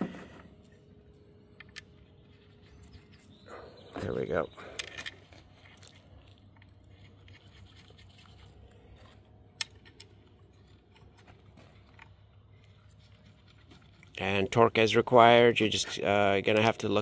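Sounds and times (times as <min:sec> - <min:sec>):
small metal clicks of bolts: 0:04.6 - 0:05.9.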